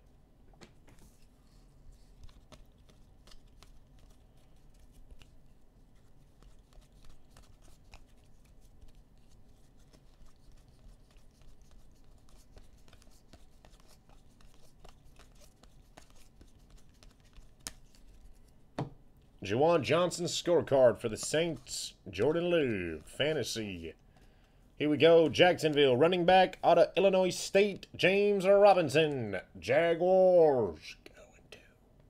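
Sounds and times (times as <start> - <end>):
trading cards clicking and rustling: 2.0 - 18.6, 19.8 - 26.0.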